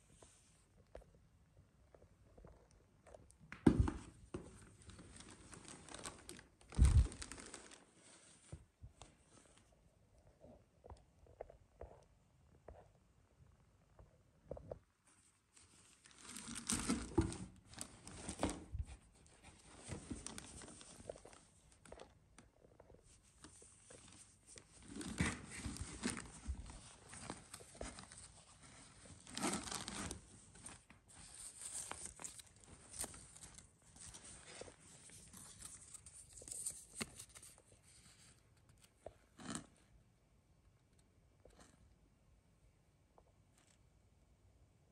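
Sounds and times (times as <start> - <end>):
plastic packaging crinkling: 4.8 - 7.9, 16.0 - 18.5, 29.0 - 37.6.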